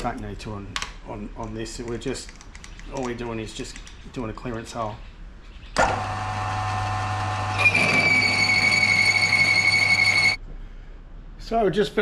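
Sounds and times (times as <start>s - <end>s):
milling machine hum: 5.8s - 10.4s
high-pitched cutting squeal: 7.4s - 10.4s.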